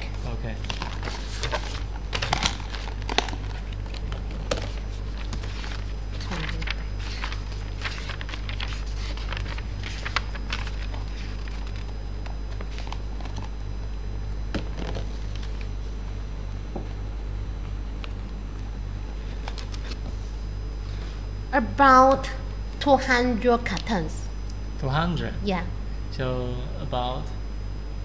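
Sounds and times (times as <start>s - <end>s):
low electrical hum: 0.0s - 28.0s
paper pages leafed: 0.7s - 11.9s, 19.2s - 20.1s.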